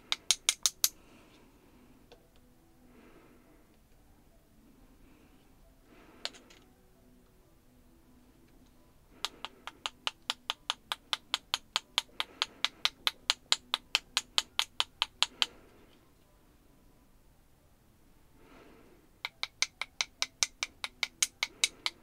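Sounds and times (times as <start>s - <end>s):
metal tool tapping brush handle: 0.0s - 1.0s, 9.2s - 15.5s, 19.2s - 22.0s.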